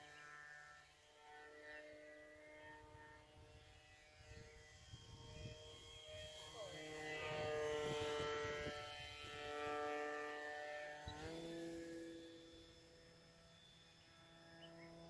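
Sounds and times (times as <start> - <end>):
model plane propeller buzzing: 0.0 - 15.0.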